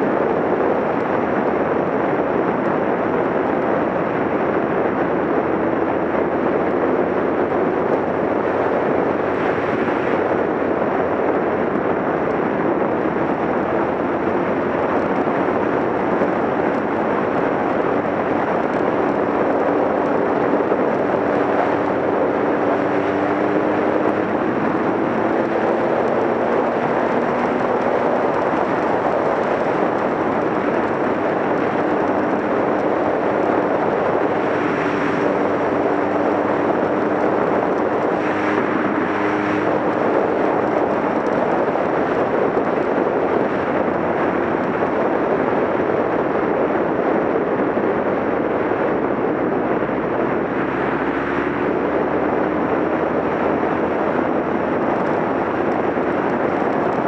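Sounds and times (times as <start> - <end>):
motorcycle engine hum: 0.0 - 57.0
wind and road noise: 0.0 - 57.0.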